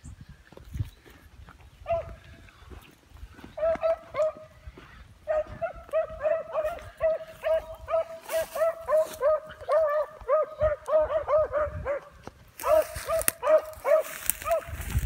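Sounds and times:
dogs baying: 1.9 - 2.2, 3.6 - 4.5, 5.2 - 14.7.

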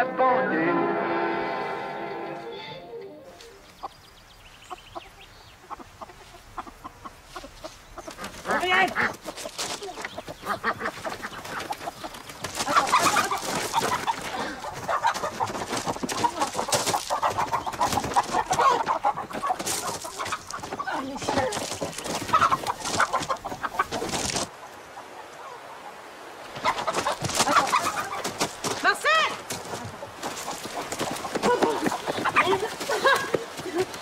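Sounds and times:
outdoor background: 0.0 - 34.0
hens clucking and squawking: 2.5 - 34.0
wings flapping: 8.1 - 24.5, 26.5 - 34.0.

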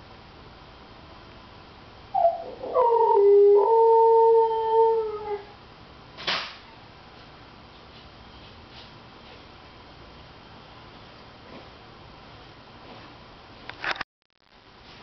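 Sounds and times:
dog howling: 2.1 - 5.6.

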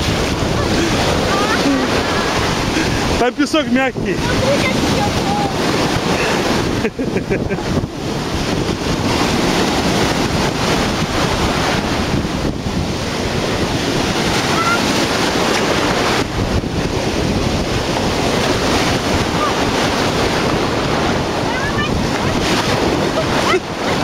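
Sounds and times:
sea surf washing in: 0.0 - 24.0
wind buffeting microphone: 0.0 - 24.0.

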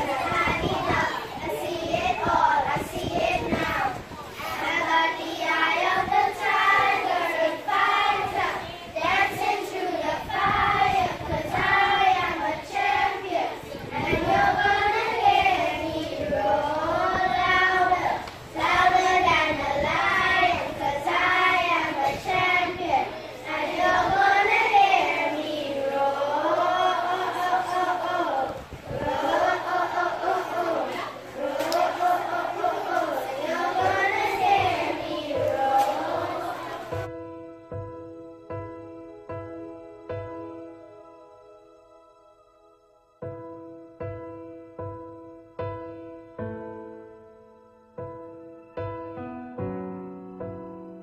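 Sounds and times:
children singing together: 0.0 - 37.2.

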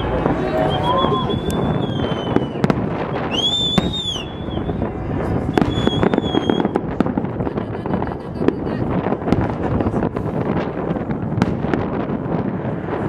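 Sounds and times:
firework whistle: 0.0 - 6.8
fireworks bangs: 0.0 - 13.0.

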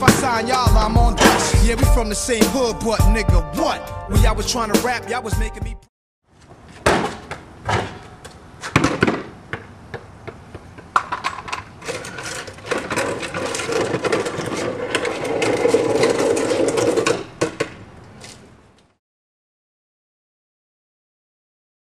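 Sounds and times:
basketball hoop rim clatter: 1.0 - 1.7.

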